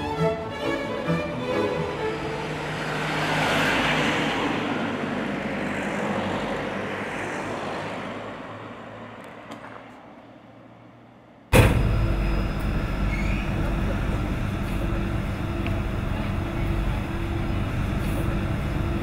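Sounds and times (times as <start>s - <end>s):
van driving past: 0.0s - 9.0s
loud machine rumble: 11.5s - 19.0s.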